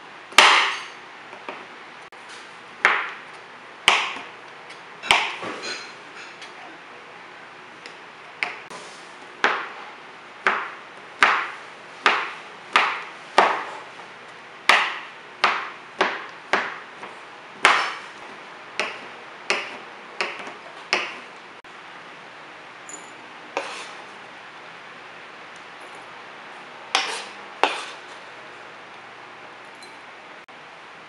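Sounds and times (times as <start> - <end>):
knife chopping on cutting board: 0.3 - 1.6, 2.8 - 3.2, 3.8 - 4.3, 5.0 - 5.6, 9.4 - 9.8, 10.4 - 13.9, 14.6 - 21.3, 23.6 - 24.0, 26.9 - 28.2.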